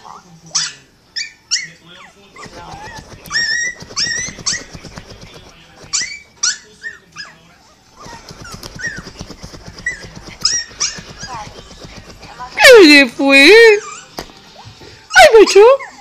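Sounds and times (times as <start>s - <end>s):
small dog whimpering and whining: 15.1s - 16.0s.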